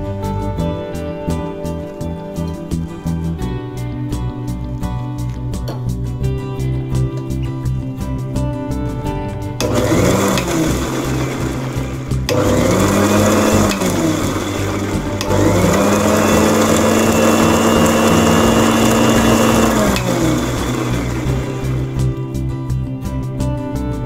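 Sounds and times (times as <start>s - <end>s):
mixer grinder motor whining: 9.6s - 22.2s.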